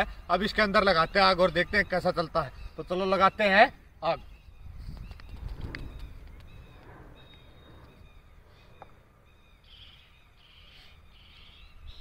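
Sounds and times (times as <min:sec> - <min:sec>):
low rumble: 0:05.3 - 0:09.5.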